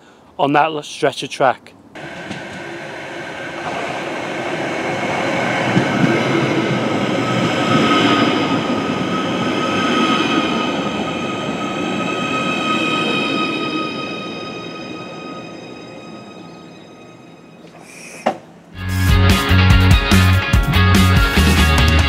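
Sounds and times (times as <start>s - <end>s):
train wheels rumbling on rails: 2.0s - 14.5s
high whining tones: 2.0s - 19.0s.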